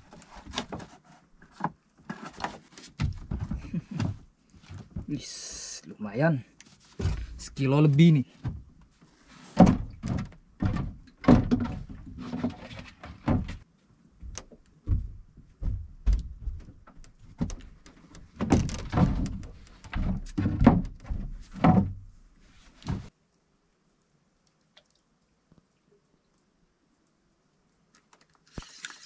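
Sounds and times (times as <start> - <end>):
dull thumps and knocks: 1.5 - 5.2, 7.0 - 7.5, 8.4 - 8.8, 9.6 - 13.6, 14.2 - 23.1.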